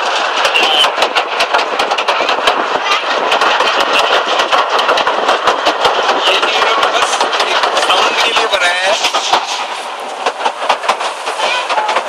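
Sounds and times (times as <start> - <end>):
steady train running noise: 0.0 - 12.0
train wheels clattering on track: 0.0 - 12.0.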